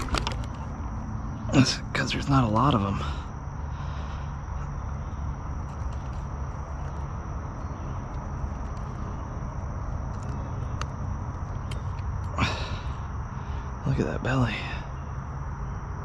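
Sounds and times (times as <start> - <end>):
high insect drone: 0.0 - 16.0
faint clicks: 10.1 - 12.4.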